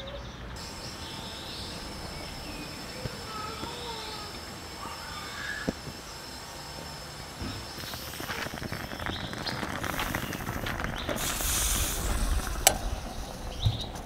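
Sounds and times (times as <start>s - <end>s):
steam hissing sputter: 0.6s - 14.0s
coffee bubbling and crackling: 7.8s - 14.0s.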